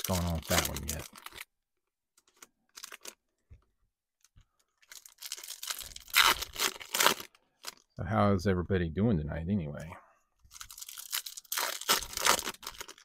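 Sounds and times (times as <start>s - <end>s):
foil wrapper crinkling and tearing: 0.0s - 1.5s, 2.2s - 3.2s, 4.7s - 7.9s, 10.5s - 13.0s.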